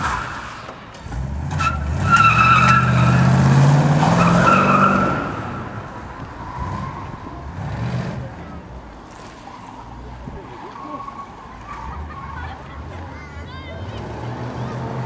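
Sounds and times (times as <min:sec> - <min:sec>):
car engine accelerating hard: 0:00.0 - 0:09.4, 0:13.8 - 0:15.0
tyres squealing: 0:00.0 - 0:15.0.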